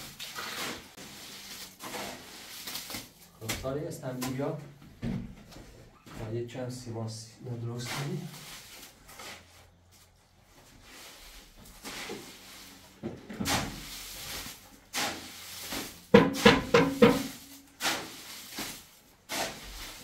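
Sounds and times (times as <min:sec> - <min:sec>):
stone tiles knocking and scraping: 0:16.2 - 0:17.4.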